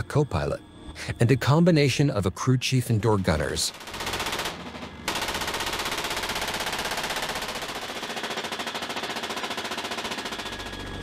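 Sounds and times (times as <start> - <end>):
machine gun automatic fire: 3.7 - 11.0.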